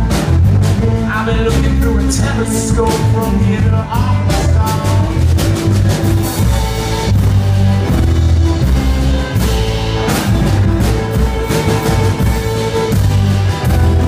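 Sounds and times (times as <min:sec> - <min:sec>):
drum kit beat: 0:00.0 - 0:14.0
electric guitar: 0:00.0 - 0:14.0
strummed acoustic guitar: 0:00.0 - 0:14.0
upright bass: 0:00.0 - 0:14.0
fiddle: 0:04.6 - 0:14.0.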